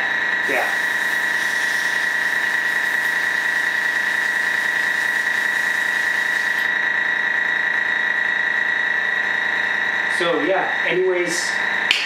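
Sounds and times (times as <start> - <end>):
air compressor humming with whine: 0.0 - 12.0
airy hiss: 0.4 - 6.6.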